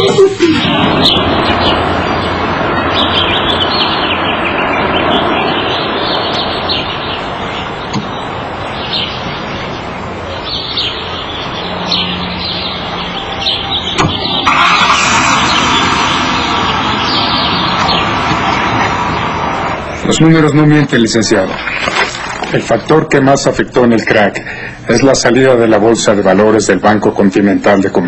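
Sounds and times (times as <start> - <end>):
birds chirping: 0.0 - 28.0
car door shutting: 14.0 - 14.3.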